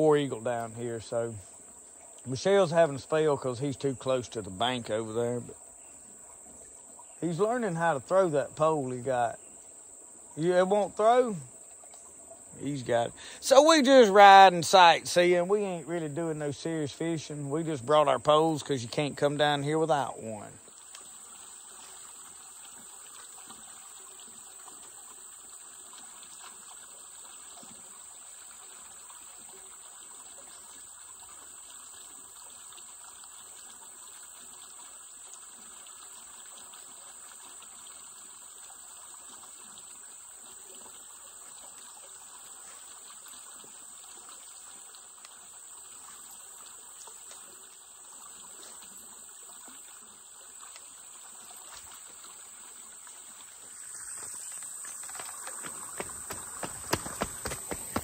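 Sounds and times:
high-pitched hiss: 0.0s - 58.0s
water trickling and flowing: 0.0s - 58.0s.

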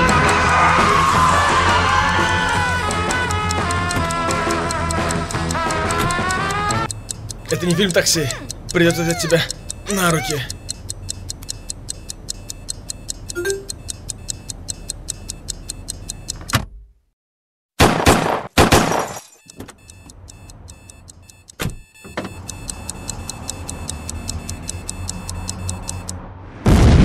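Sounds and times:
loud clock ticking: 0.0s - 16.5s, 19.5s - 26.2s.

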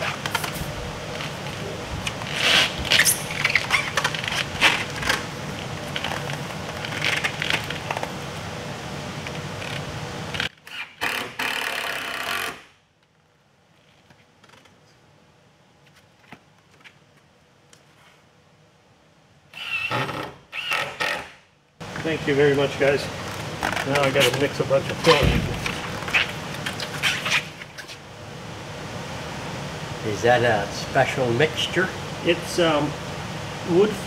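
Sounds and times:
steady low hum: 0.0s - 10.7s, 21.3s - 34.0s.

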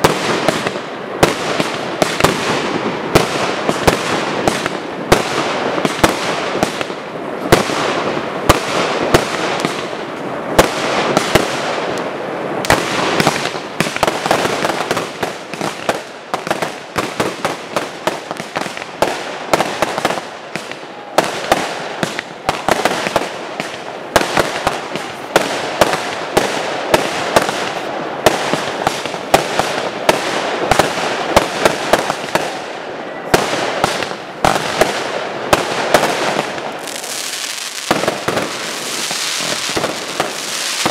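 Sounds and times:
fireworks crackling: 0.0s - 40.9s.

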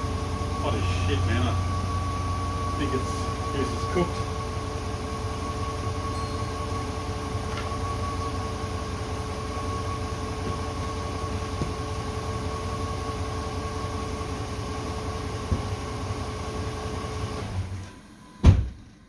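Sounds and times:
faint steady tones: 0.0s - 10.6s
engine idling: 0.0s - 17.8s.

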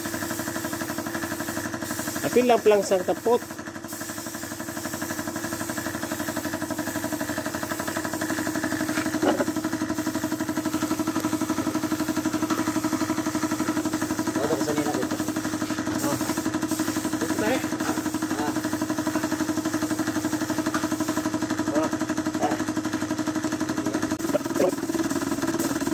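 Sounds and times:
air compressor motor running: 0.0s - 25.9s
hiss of spray gun: 0.0s - 25.9s.

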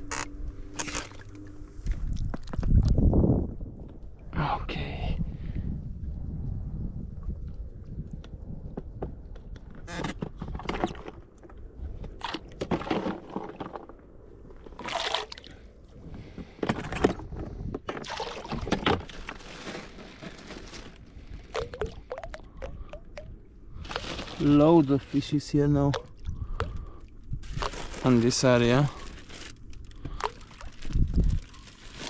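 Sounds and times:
water sloshing: 10.3s - 32.0s
oars splashing: 14.6s - 15.7s, 17.9s - 20.8s.

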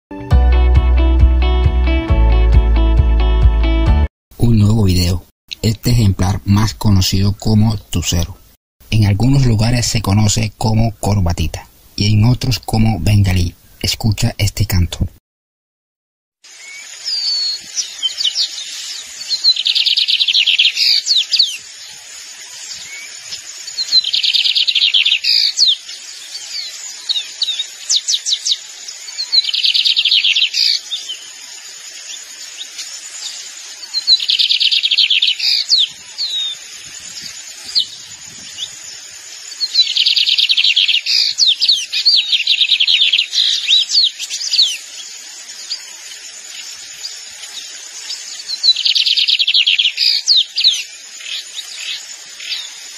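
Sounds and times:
bird singing fast trill: 16.5s - 52.9s.

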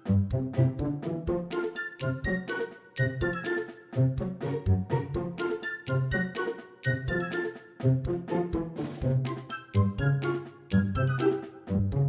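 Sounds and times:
instrumental music with steady beat: 0.0s - 12.0s.

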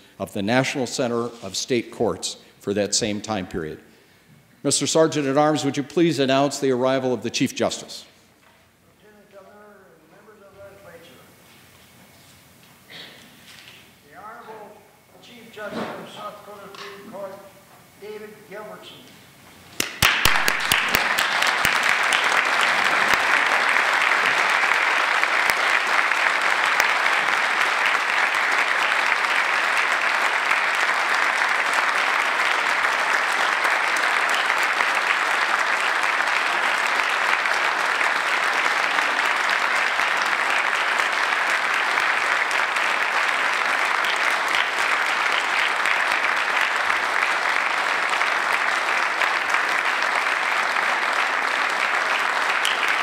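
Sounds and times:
large crowd applauding: 19.8s - 53.0s.

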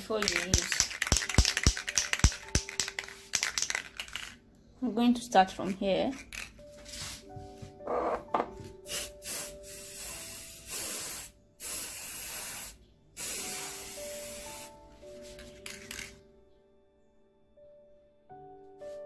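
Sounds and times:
aerosol spray hissing: 8.8s - 14.8s.

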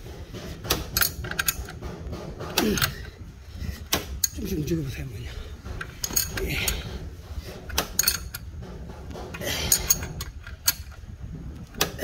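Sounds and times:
wrench clicking and clinking: 0.7s - 1.8s, 2.5s - 3.1s, 4.2s - 4.4s, 5.8s - 7.0s, 7.7s - 8.5s, 9.3s - 11.1s.

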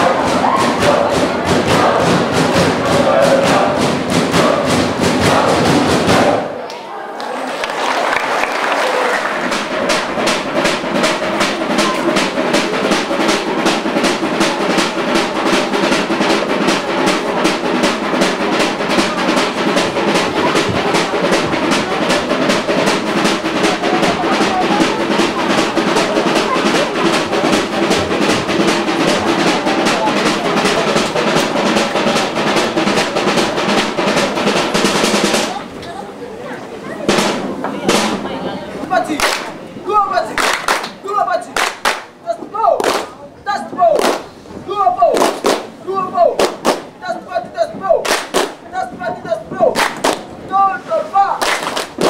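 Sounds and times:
fast percussion beat: 0.0s - 6.6s, 9.2s - 35.8s, 37.0s - 52.0s
group of voices singing: 0.0s - 6.7s
handclaps: 6.7s - 11.2s, 39.1s - 39.6s, 40.3s - 42.2s, 42.8s - 43.2s, 43.9s - 44.3s, 45.1s - 45.7s, 46.4s - 46.9s, 48.0s - 48.6s, 49.7s - 50.3s, 51.4s - 52.0s.

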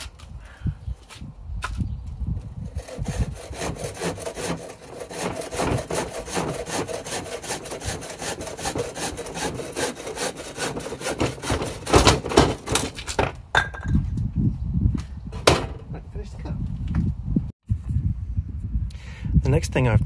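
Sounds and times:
handsaw cutting wood: 2.6s - 13.0s.

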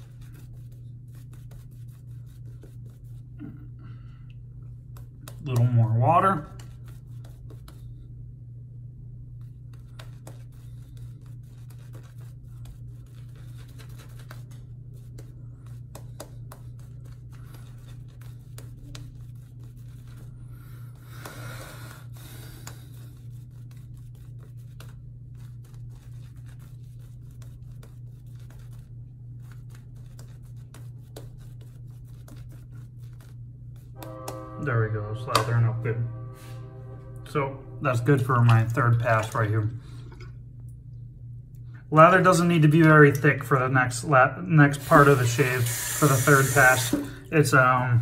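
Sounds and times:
shaving brush scratching lather: 0.0s - 3.4s, 5.0s - 8.0s, 9.4s - 21.0s, 22.6s - 34.2s, 44.7s - 46.9s
steady low hum: 0.0s - 45.7s.

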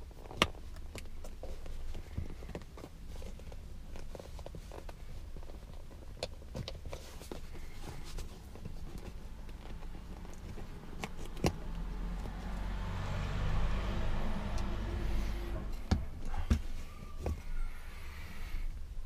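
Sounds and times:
low rumble: 11.6s - 17.2s.

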